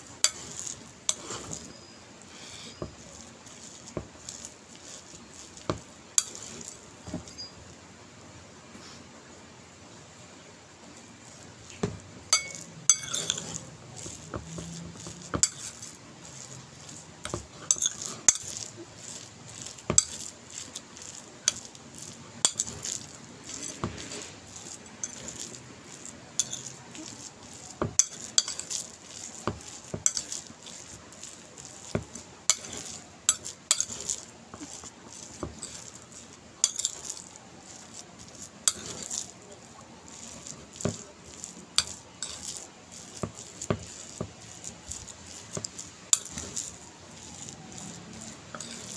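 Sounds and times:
metal spoon stirring batter: 0.0 - 8.0, 10.6 - 48.9
spoon clinking on ceramic bowl: 12.3 - 13.6.

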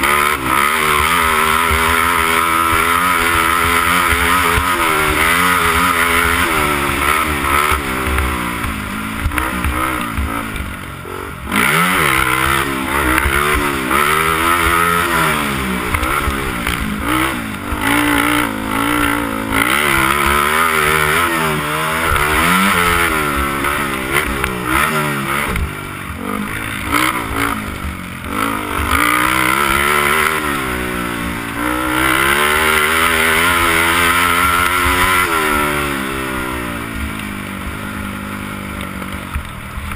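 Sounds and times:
quad engine revving: 0.0 - 39.9.

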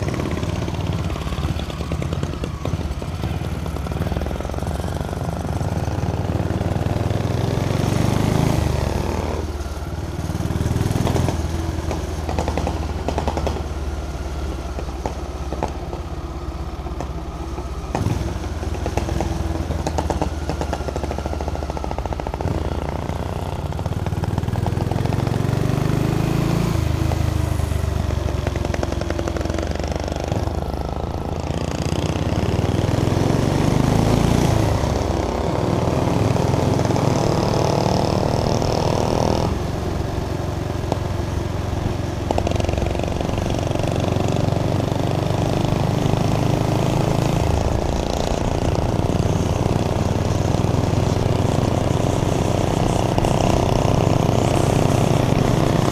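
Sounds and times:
motorcycle engine accelerating: 0.0 - 55.9.

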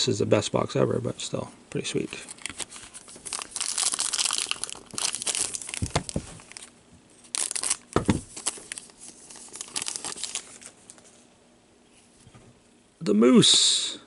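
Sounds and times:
wrapper crinkling: 2.2 - 11.1
scissors cutting wrapper: 2.3 - 6.7, 7.3 - 10.7.

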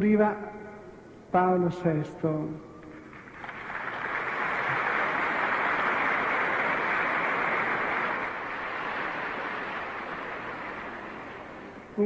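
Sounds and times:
large audience applauding: 3.0 - 12.0.

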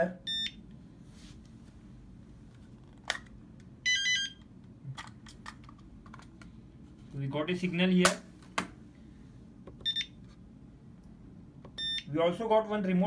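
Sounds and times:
keypad beep: 0.3 - 0.6, 3.9 - 4.4, 9.8 - 10.2, 11.7 - 12.1.

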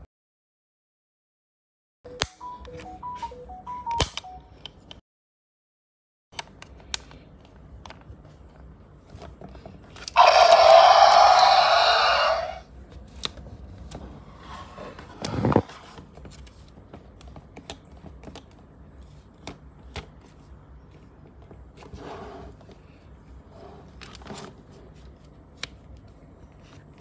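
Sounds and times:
electronic toy roar: 10.1 - 12.7.

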